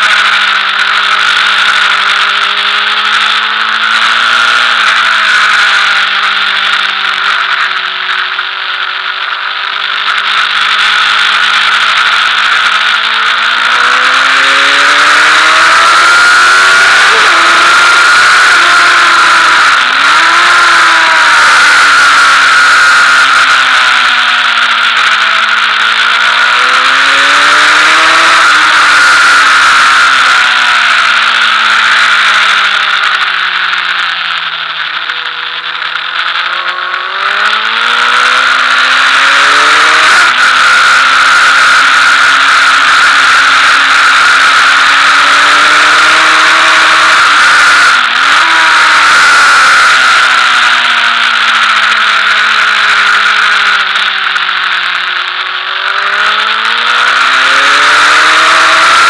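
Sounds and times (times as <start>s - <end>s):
motorcycle engine: 0.0s - 59.0s.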